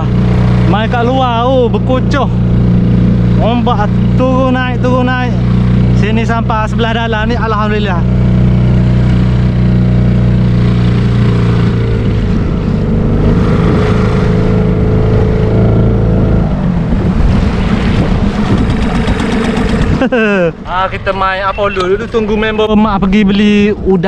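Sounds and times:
outboard motor running: 0:00.0 - 0:20.8
wind: 0:00.0 - 0:24.0
choppy water: 0:12.2 - 0:20.0.

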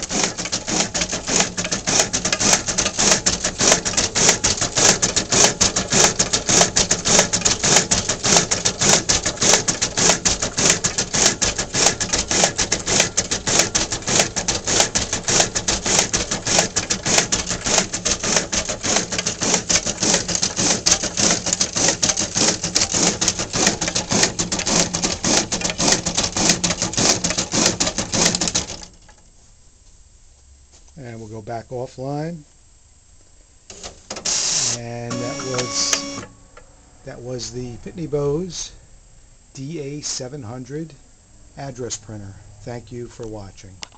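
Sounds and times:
printer feeding clatter: 0:00.0 - 0:29.0, 0:33.7 - 0:36.3.

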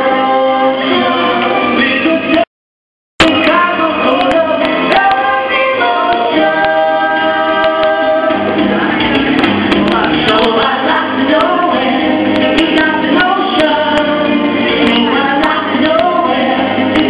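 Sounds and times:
guitar accompaniment: 0:00.0 - 0:02.4, 0:03.2 - 0:17.0
woman singing into microphone: 0:03.2 - 0:09.0, 0:09.8 - 0:17.0.

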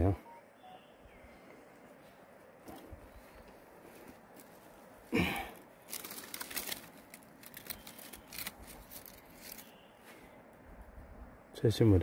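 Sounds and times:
dry leaves and soil rustling: 0:02.0 - 0:10.2.

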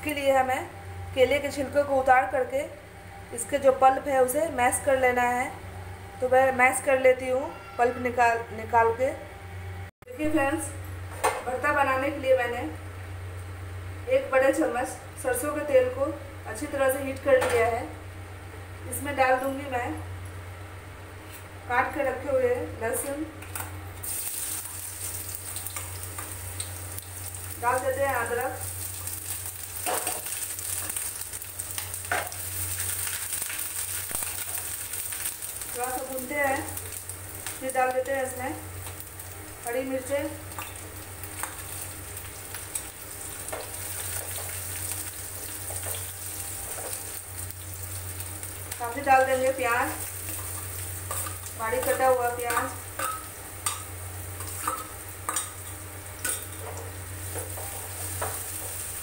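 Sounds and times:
garlic and ginger sizzling in oil: 0:00.0 - 0:05.5, 0:21.7 - 0:59.0.

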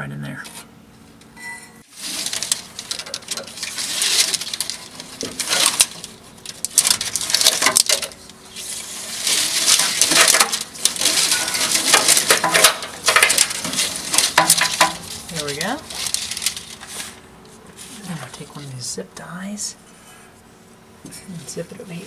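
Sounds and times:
plastic wiring harness rustling: 0:01.9 - 0:17.2.

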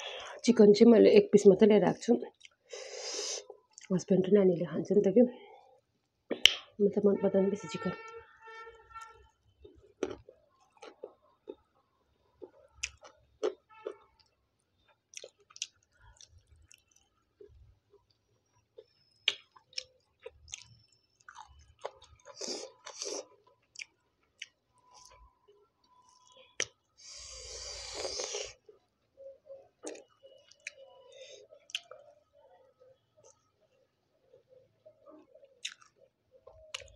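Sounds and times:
wet chewing mouth sounds: 0:18.8 - 0:25.2, 0:29.8 - 0:32.1, 0:35.2 - 0:36.9.

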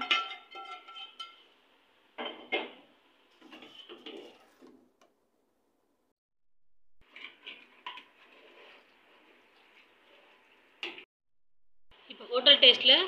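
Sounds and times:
metal ladle scraping a pot: 0:03.3 - 0:04.8, 0:07.0 - 0:10.6.

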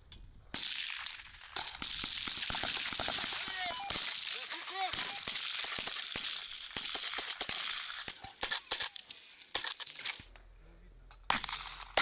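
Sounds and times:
rifle gunshots: 0:00.5 - 0:09.8, 0:11.3 - 0:12.0.

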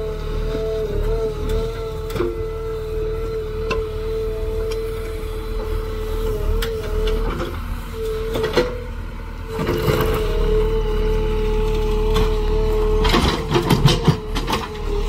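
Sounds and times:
diesel engine rumbling: 0:00.0 - 0:15.0.

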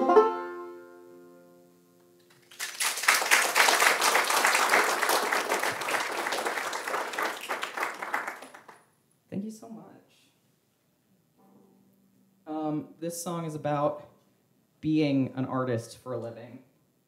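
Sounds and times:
audience applause: 0:02.3 - 0:08.8.

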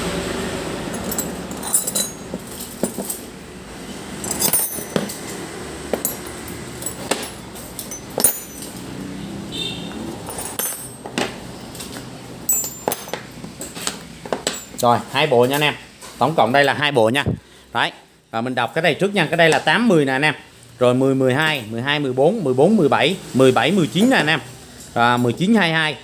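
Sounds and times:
metal wrenches clinking: 0:00.9 - 0:03.3, 0:04.2 - 0:09.0, 0:10.2 - 0:15.7, 0:16.4 - 0:16.8.

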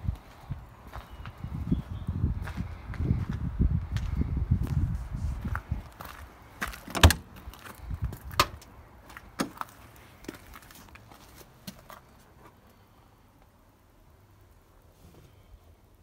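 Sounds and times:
car door handle and latch clicks: 0:06.9 - 0:07.3.

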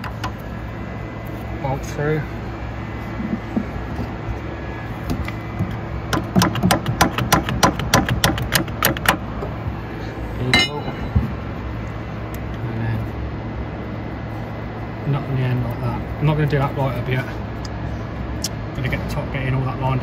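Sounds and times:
hammer tapping metal: 0:10.5 - 0:11.2.

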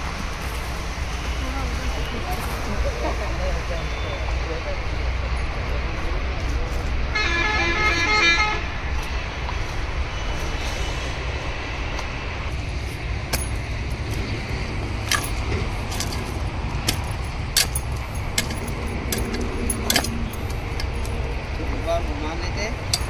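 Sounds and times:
low rumble: 0:08.6 - 0:23.0
sharp clinks and knocks: 0:13.3 - 0:14.2, 0:15.0 - 0:21.2.

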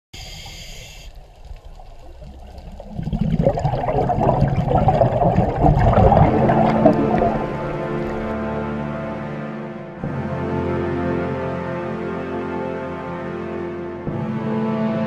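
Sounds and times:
water bubbling and gurgling: 0:00.2 - 0:08.8.

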